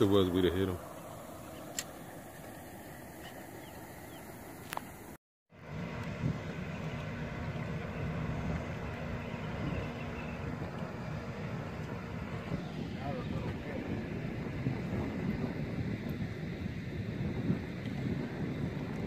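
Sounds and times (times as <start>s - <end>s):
boat motor hum: 0.0s - 19.0s
wind on microphone: 5.7s - 19.0s.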